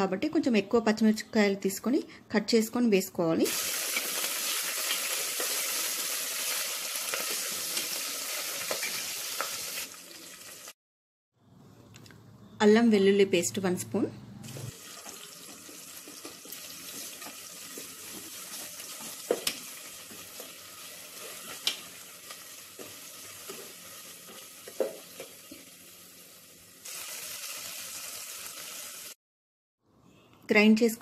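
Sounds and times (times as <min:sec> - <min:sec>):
oil sizzling in a pot: 0:03.4 - 0:10.8, 0:14.5 - 0:29.2.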